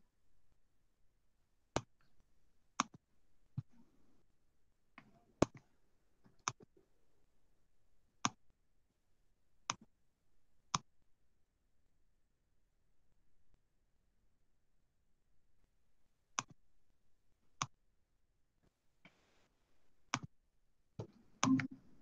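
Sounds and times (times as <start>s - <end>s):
mouse button clicks: 21.4s - 21.8s.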